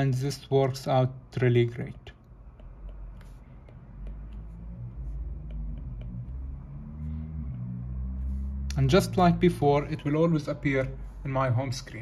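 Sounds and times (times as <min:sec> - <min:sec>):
low hum: 0:02.3 - 0:11.2
stylus tapping on glass screen: 0:02.4 - 0:04.5.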